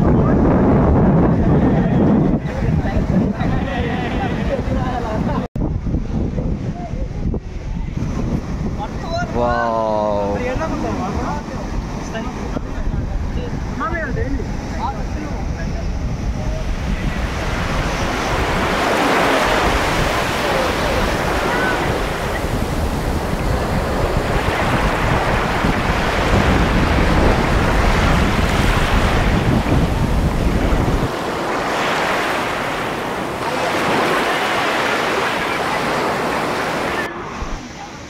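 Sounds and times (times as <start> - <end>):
sea surf washing in: 0.0 - 38.0
wind buffeting microphone: 0.0 - 38.0.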